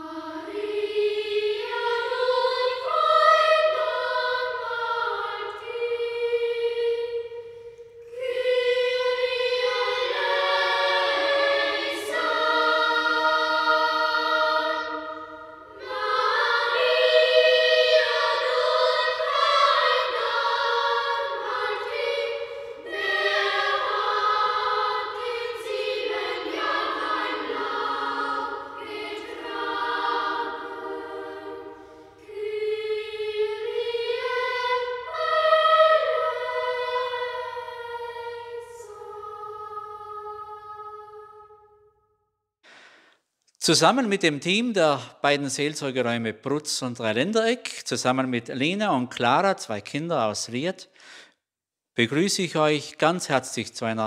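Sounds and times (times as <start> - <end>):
choir singing: 0.0 - 41.8.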